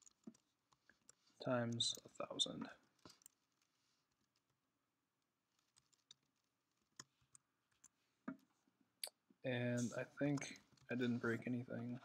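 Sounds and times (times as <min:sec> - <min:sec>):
computer keyboard typing: 0:00.0 - 0:02.1, 0:02.9 - 0:04.6, 0:05.5 - 0:08.0.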